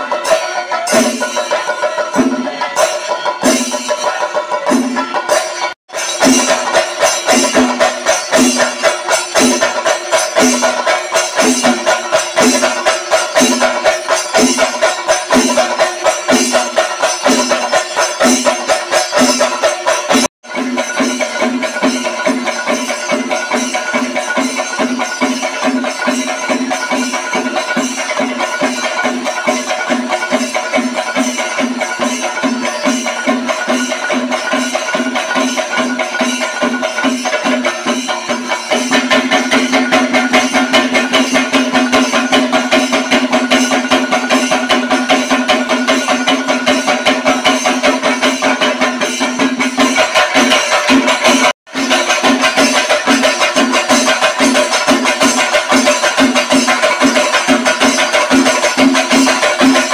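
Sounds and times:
pitched drum beating: 0:00.0 - 0:59.9.

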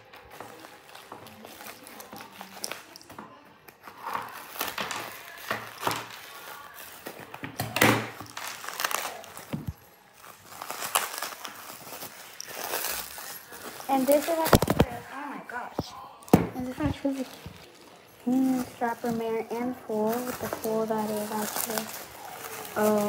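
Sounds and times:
plastic wrapping crinkling: 0:00.0 - 0:23.0.

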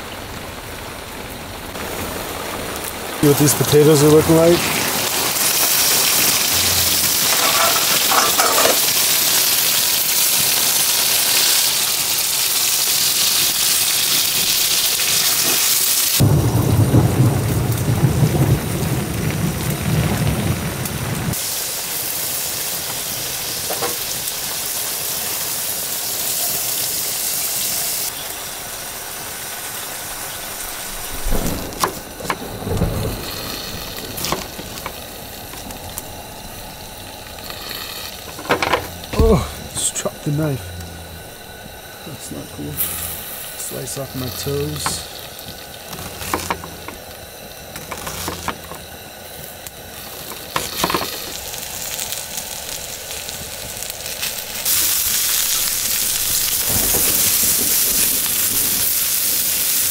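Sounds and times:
heavy rain hissing: 0:00.0 - 0:59.9
thunder rumbling: 0:00.2 - 0:08.2, 0:16.2 - 0:21.4, 0:30.0 - 0:49.0, 0:55.3 - 0:59.6.

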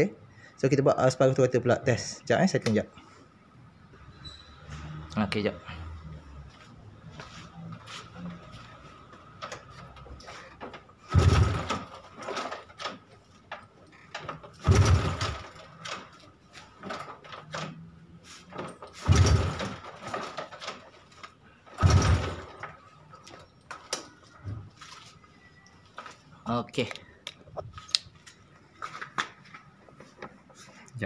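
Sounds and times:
engine kicked over without firing: 0:11.0 - 0:12.9, 0:14.5 - 0:16.1, 0:18.9 - 0:20.8, 0:21.7 - 0:22.8.

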